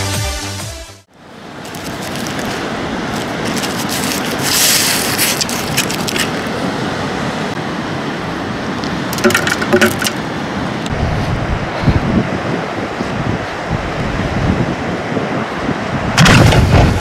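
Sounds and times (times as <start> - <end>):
paper rustling and scraping: 1.6 - 6.5
wind over microphone: 10.8 - 17.0.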